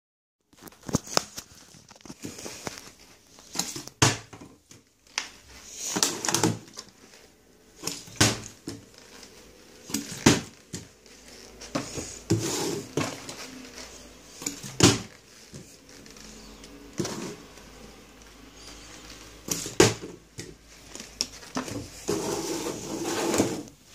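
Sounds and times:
plastic bottle crinkling: 0.5 - 4.0.

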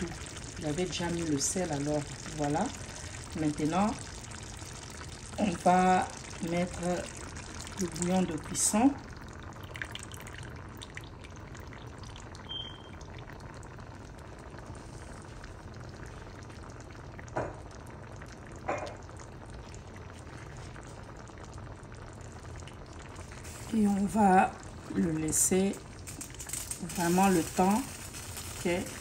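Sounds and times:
pot boiling: 0.0 - 29.0.

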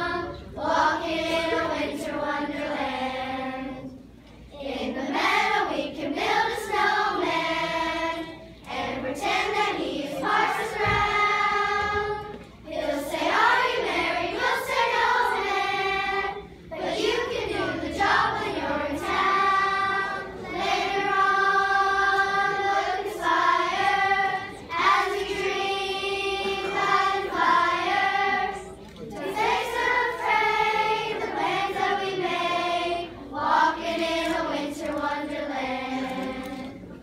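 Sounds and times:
children's choir singing: 0.0 - 37.0.

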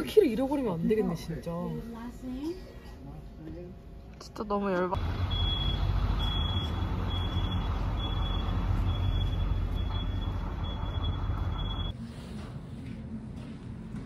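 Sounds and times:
low engine rumble: 5.0 - 12.0
reversing alarm beeping: 5.1 - 12.0.

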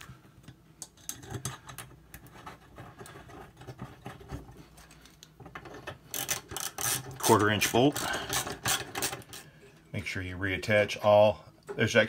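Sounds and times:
metal parts clicking and scraping: 0.8 - 9.5.

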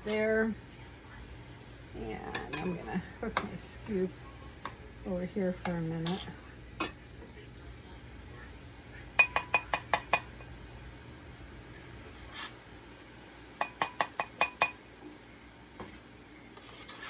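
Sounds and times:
metal skimmer tapping ceramic bowl: 2.3 - 2.8, 9.2 - 10.4, 13.6 - 14.8.

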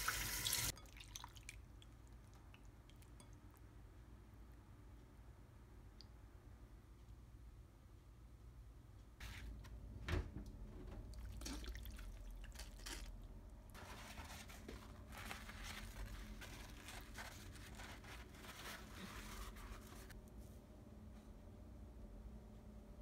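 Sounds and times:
paper towel crinkling: 13.8 - 20.2.

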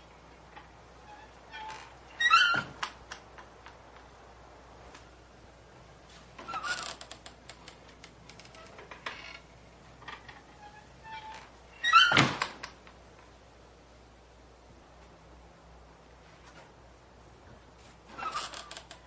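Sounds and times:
screen door hinges creaking: 0.3 - 4.2, 6.4 - 13.2, 18.1 - 19.0
light clicks and rattles: 6.4 - 10.6, 18.1 - 19.0.

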